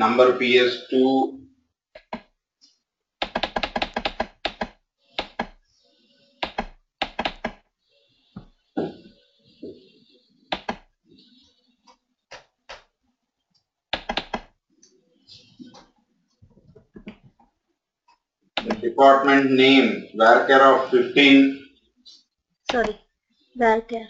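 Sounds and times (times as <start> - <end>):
dull knocks and taps: 16.4 - 17.5.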